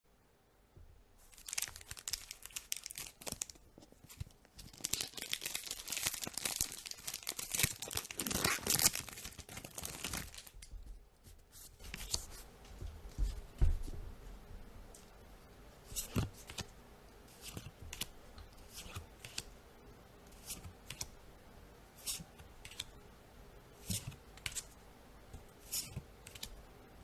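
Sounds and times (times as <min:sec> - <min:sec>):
foil wrapper tearing and crinkling: 0:01.3 - 0:03.6, 0:04.6 - 0:10.6.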